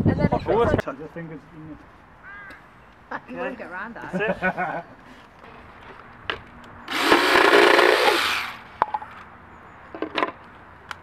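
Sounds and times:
power saw cutting wood: 0:06.9 - 0:08.6.

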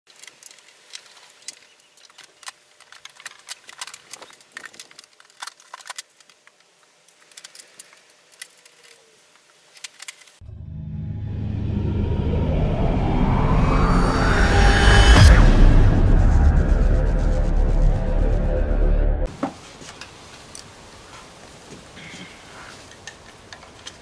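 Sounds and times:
low rumble of music: 0:10.4 - 0:19.3.

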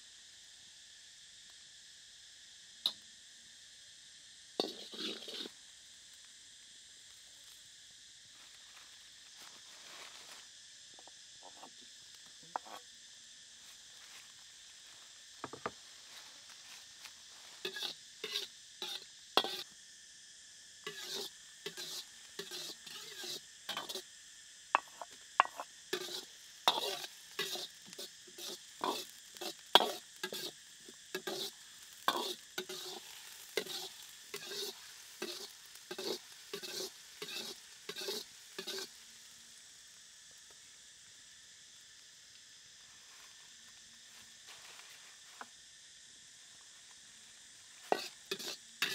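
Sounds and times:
oil sizzling: 0:00.8 - 0:48.9
ladle scraping steel wok: 0:04.6 - 0:05.5, 0:17.7 - 0:19.6, 0:20.9 - 0:24.0, 0:25.4 - 0:30.6, 0:31.2 - 0:39.0, 0:47.9 - 0:48.9.

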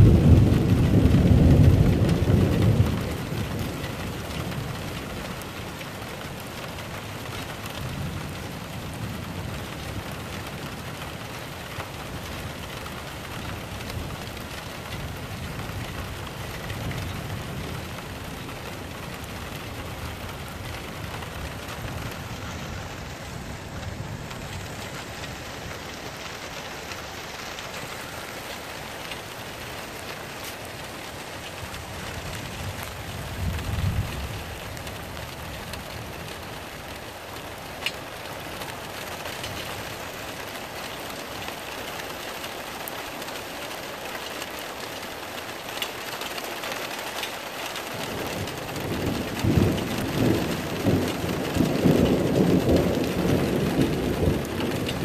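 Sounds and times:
rolling thunder: 0:00.0 - 0:05.6, 0:12.2 - 0:36.7, 0:48.0 - 0:55.0
thunder rumbling: 0:00.0 - 0:42.3, 0:47.4 - 0:55.0
rain hissing: 0:00.0 - 0:55.0.

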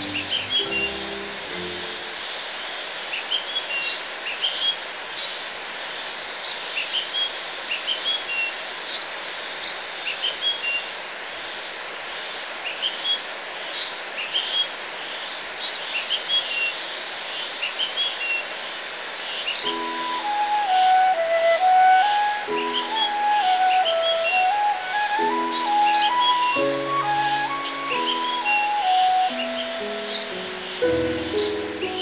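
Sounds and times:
small birds chirping: 0:00.0 - 0:05.4, 0:12.2 - 0:32.0
steady rushing noise: 0:00.0 - 0:07.7.

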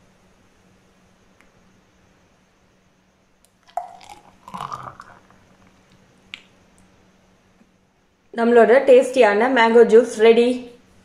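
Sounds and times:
juice glugging and splattering: 0:03.6 - 0:05.8.

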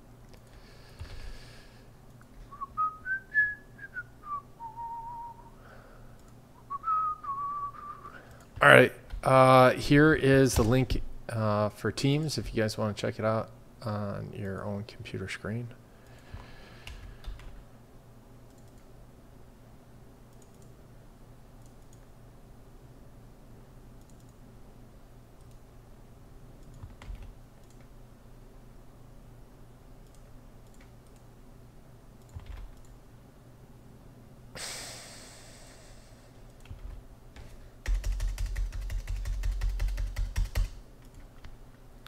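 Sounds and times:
steady low hum: 0:00.0 - 0:42.0
faint clicks: 0:18.5 - 0:18.9, 0:24.0 - 0:24.4, 0:25.4 - 0:25.6, 0:27.6 - 0:27.9, 0:30.0 - 0:31.3
breathy exhale: 0:34.6 - 0:36.4.

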